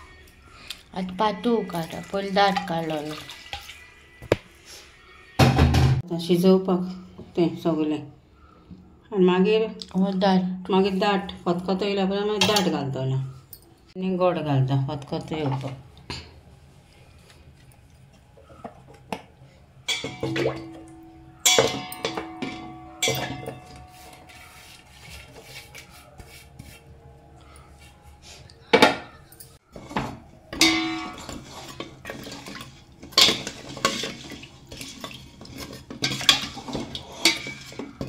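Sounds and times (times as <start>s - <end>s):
metal spoon clinking in a steel pot: 19.8s - 24.4s, 30.5s - 38.0s.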